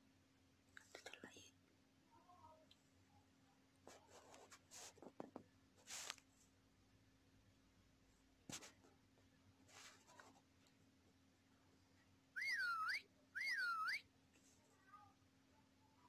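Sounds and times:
scratchy noise: 3.9s - 6.2s
high-pitched animal calls: 12.4s - 14.0s.

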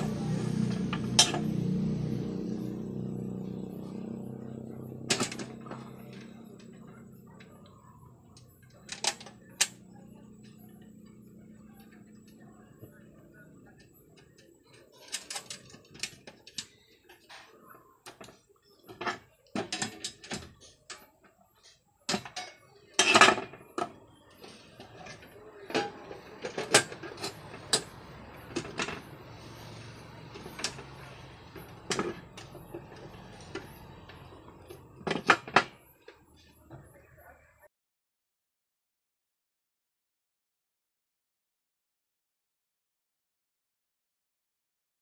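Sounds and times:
metal clanking and scraping: 0.0s - 2.8s, 4.4s - 7.8s, 21.6s - 36.5s.

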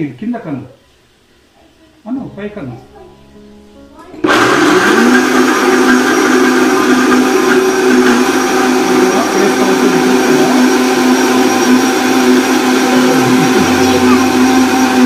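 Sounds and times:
blender motor running: 4.2s - 15.0s.

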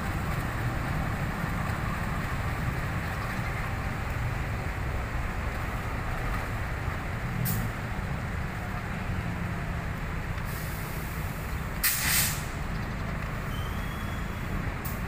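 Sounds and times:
diesel locomotive engine rumbling: 0.0s - 15.0s
air brake hiss: 10.5s - 12.6s.

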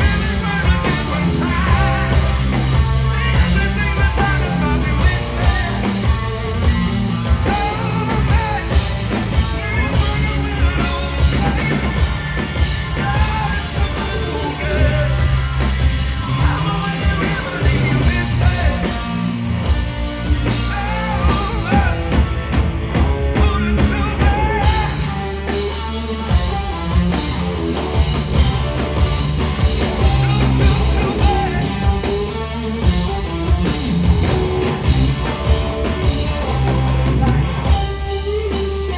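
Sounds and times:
man singing lead vocal: 0.0s - 19.6s, 20.4s - 22.3s, 23.2s - 26.9s, 29.8s - 33.4s
live blues rock band: 0.0s - 38.9s.

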